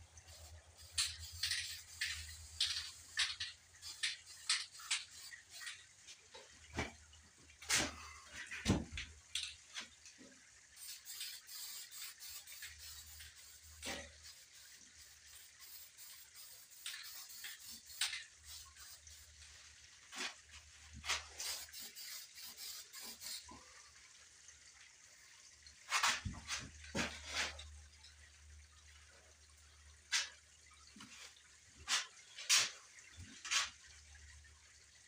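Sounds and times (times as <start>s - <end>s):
spray-paint can hissing: 0.3s - 5.7s, 10.8s - 19.3s, 21.3s - 23.5s.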